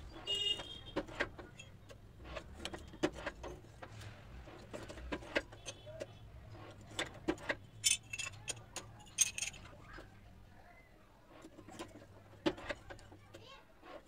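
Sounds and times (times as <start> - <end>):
tile pieces and tools clinking: 7.8 - 9.7.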